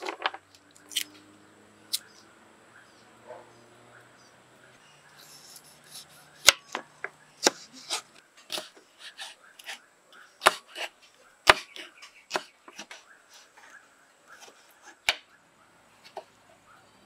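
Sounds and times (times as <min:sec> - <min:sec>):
knife chopping on wooden board: 0:10.4 - 0:13.0.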